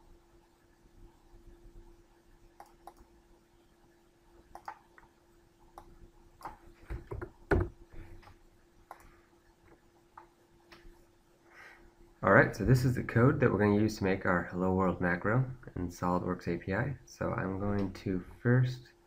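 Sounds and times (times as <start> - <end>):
low steady hum: 0.0 - 19.0
computer mouse clicks: 2.6 - 3.1, 4.5 - 5.1, 5.7 - 6.6, 8.2 - 9.1.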